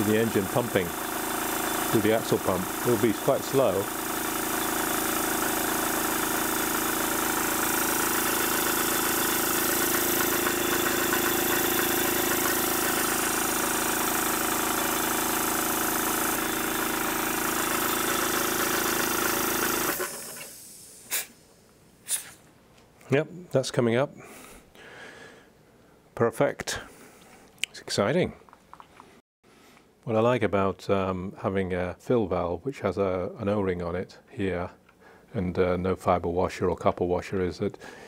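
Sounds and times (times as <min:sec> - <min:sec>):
model steam engine running: 0:00.0 - 0:20.8
hiss of exhausting air: 0:20.0 - 0:22.4.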